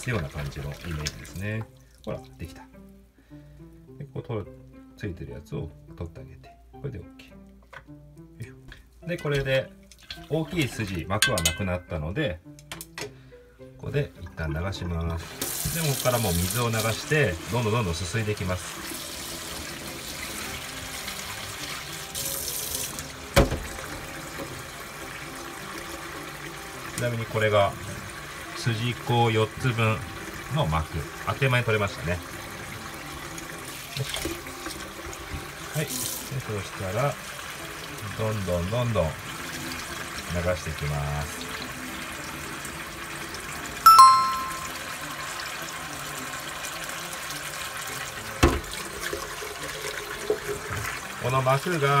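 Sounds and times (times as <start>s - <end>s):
tap water running into bowl: 0.0s - 2.6s, 9.1s - 11.8s, 14.0s - 52.0s
metallic ding: 11.2s - 11.9s, 43.9s - 44.8s.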